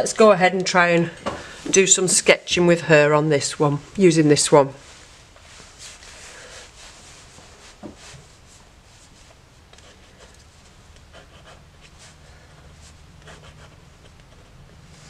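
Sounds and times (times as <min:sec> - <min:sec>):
pen scratching on paper: 0:11.0 - 0:14.8.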